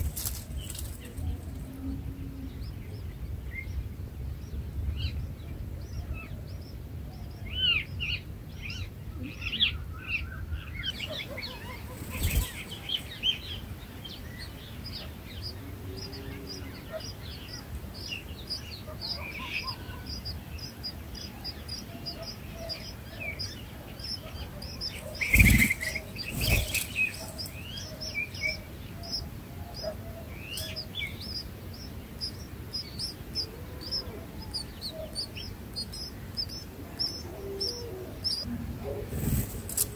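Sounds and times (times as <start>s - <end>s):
small birds chirping: 0.0s - 39.9s
swooping bird calls: 9.3s - 39.9s.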